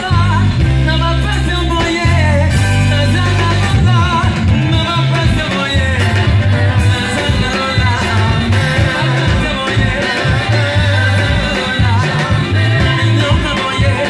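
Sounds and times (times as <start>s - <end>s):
bass line: 0.0s - 14.0s
drums: 0.0s - 14.0s
guitars: 0.0s - 14.0s
keyboard: 0.0s - 14.0s
person singing with vibrato: 0.0s - 14.0s.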